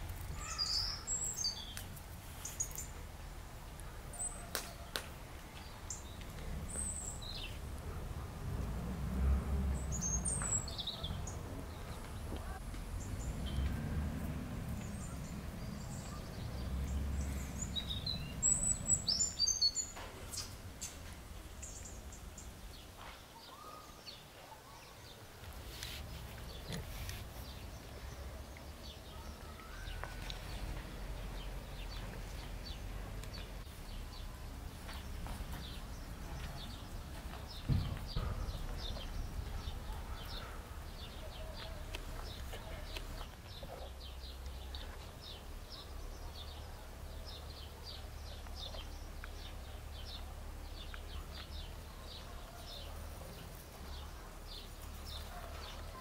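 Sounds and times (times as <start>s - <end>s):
small birds chirping: 0.0s - 56.0s
thump: 37.6s - 38.6s.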